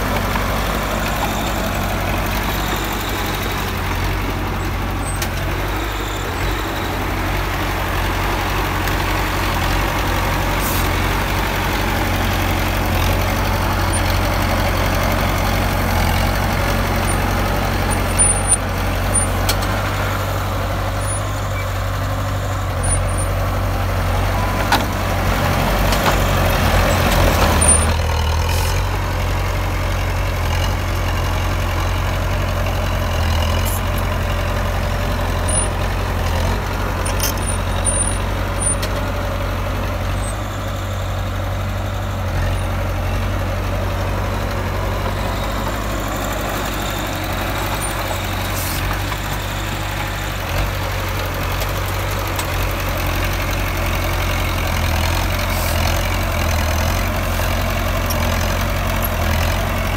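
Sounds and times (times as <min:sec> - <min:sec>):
heavy diesel machinery running: 0:00.0 - 0:59.9.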